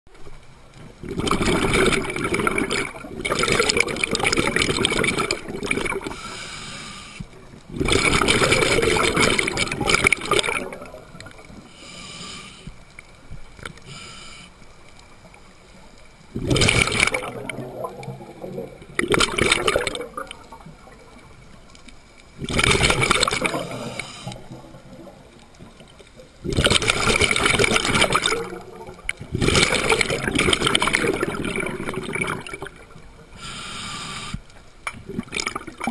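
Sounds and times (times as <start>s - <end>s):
exhaled bubbles rushing: 1.0s - 6.2s, 7.6s - 11.6s, 16.3s - 21.5s, 22.4s - 33.3s, 35.0s - 35.9s
regulator inhalations: 6.0s - 7.3s, 11.7s - 12.8s, 13.8s - 14.6s, 23.6s - 24.5s, 33.3s - 34.5s.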